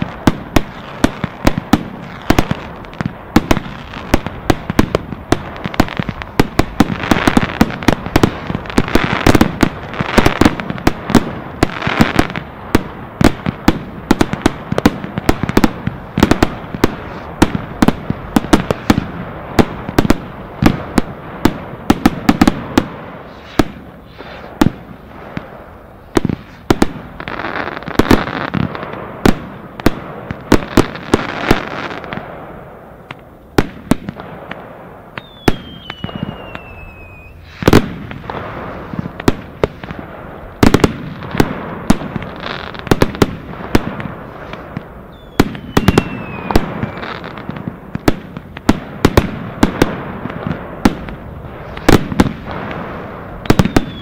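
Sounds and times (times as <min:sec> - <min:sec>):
fireworks bangs and crackles: 0:00.0 - 0:54.0
steady rushing hiss: 0:00.0 - 0:54.0
whistle falling in pitch: 0:35.2 - 0:37.4.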